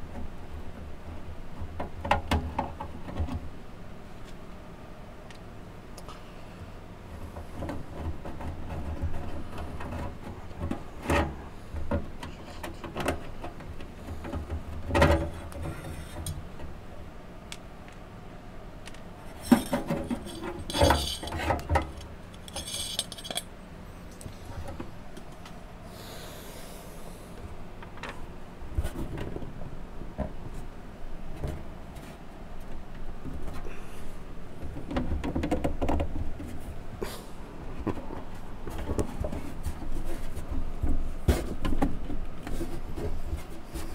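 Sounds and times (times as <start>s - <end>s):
metal plate scraping and knocking: 7.3s - 16.7s, 19.3s - 23.5s.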